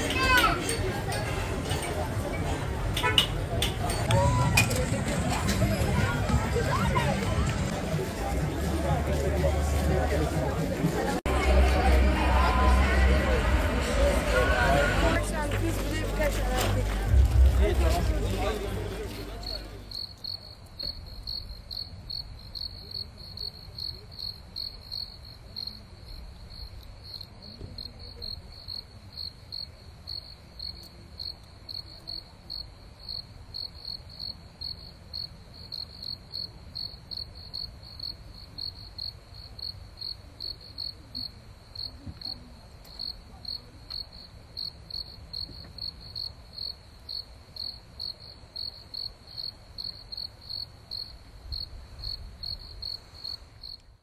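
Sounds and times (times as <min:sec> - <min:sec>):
cricket chirping: 0:19.5 - 0:54.0.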